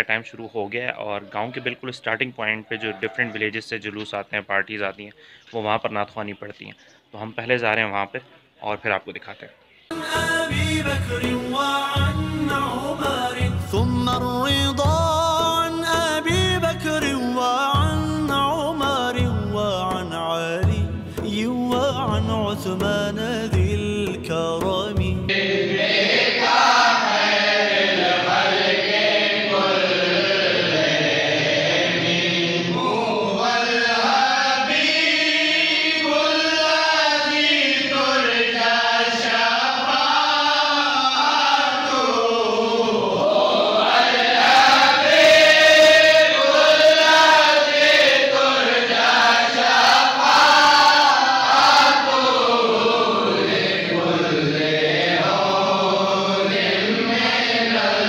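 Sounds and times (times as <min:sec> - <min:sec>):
men chanting in unison: 0:25.2 - 0:58.0.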